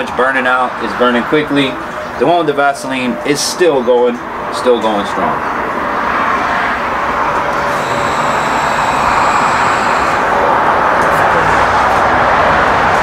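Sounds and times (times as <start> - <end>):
faint high whine: 7.4 - 11.6.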